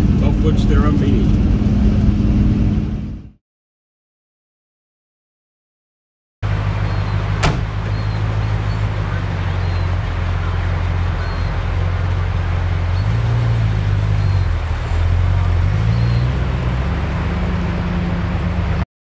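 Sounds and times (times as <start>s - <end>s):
vehicle engine revving: 6.4s - 18.8s.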